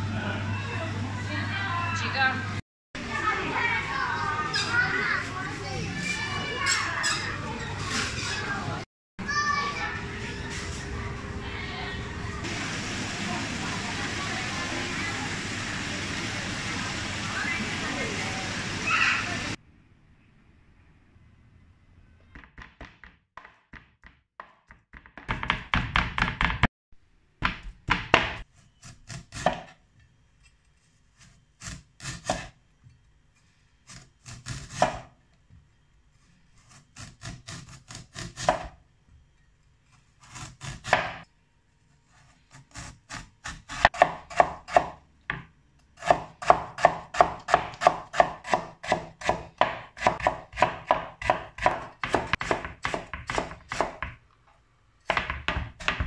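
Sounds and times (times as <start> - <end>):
cleaver chopping on wooden board: 46.0 - 54.2.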